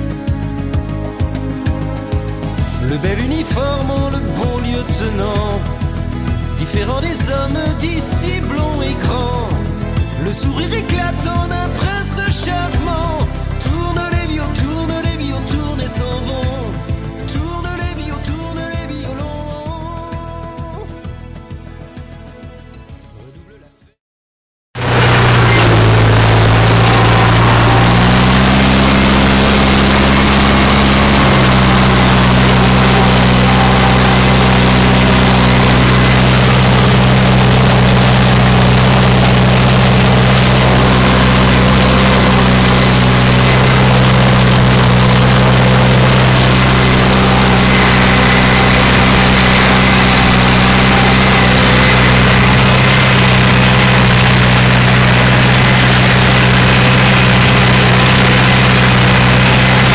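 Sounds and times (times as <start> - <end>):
tractor engine running: 24.8 - 59.9.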